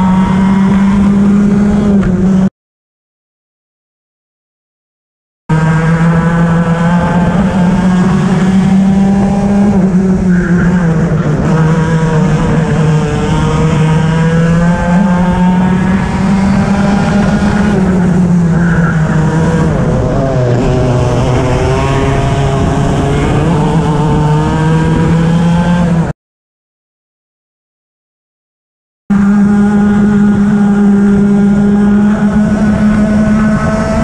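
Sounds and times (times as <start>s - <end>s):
racing kart engine revving: 0.0s - 2.5s, 5.5s - 26.1s, 29.1s - 34.0s.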